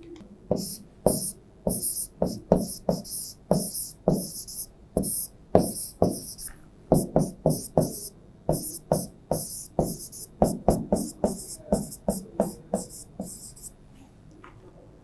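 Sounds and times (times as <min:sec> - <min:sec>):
pen tapping on a display board: 0:00.5 - 0:13.7.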